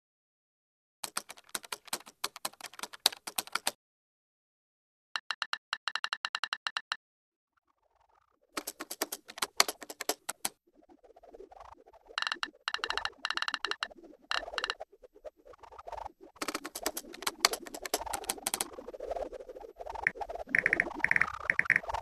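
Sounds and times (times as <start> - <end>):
keyboard typing: 1.0 - 3.8, 5.2 - 7.0, 8.6 - 10.6, 12.2 - 14.8, 16.4 - 18.7, 20.0 - 22.0.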